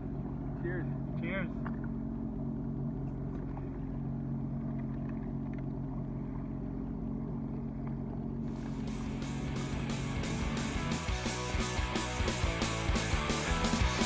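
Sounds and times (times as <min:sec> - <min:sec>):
jet ski engine idling: 0:00.0 - 0:14.0
music with regular beat: 0:08.6 - 0:14.0.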